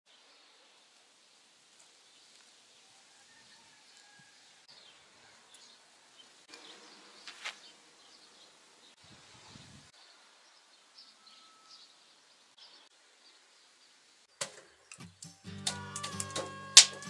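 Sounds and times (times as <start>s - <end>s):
faint high chirps: 11.0s - 12.0s.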